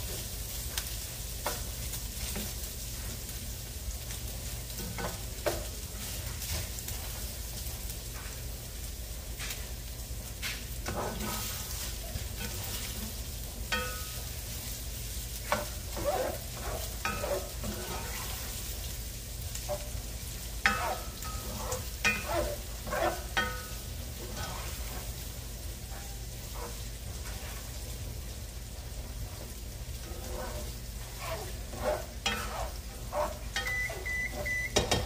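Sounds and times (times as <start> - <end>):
sausage sizzling in skillet: 0.0 - 35.0
spoon knocking and scraping pan: 4.8 - 7.1, 10.4 - 14.7, 15.4 - 18.6, 19.6 - 20.0, 20.6 - 25.2, 29.3 - 35.0.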